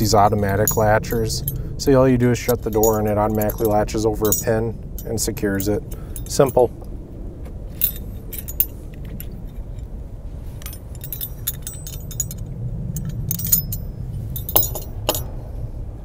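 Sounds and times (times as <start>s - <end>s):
metal latch clinking and clicking: 0.0s - 1.6s, 2.4s - 6.7s, 7.8s - 9.9s, 10.6s - 15.3s
steady low rumble: 0.0s - 16.0s.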